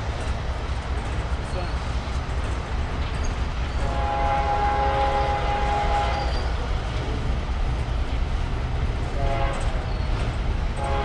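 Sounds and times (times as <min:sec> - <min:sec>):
train passing rumble: 0:00.0 - 0:11.0
diesel locomotive air horn: 0:03.8 - 0:06.4, 0:09.1 - 0:09.8, 0:10.8 - 0:11.0.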